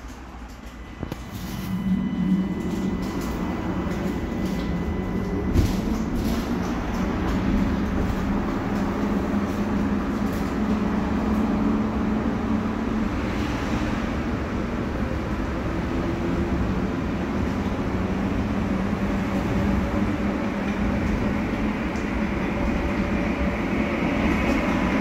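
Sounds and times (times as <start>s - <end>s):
tram low hum: 0.0s - 25.0s
wheels rumbling on rails: 0.0s - 25.0s.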